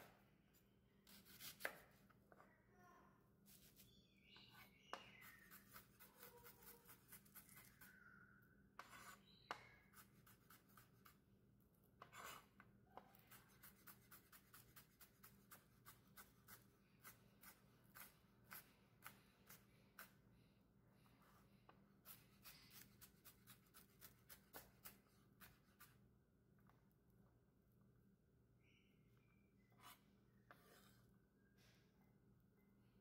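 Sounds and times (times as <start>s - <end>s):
knife chopping onion on board: 1.1s - 2.0s, 22.0s - 25.9s.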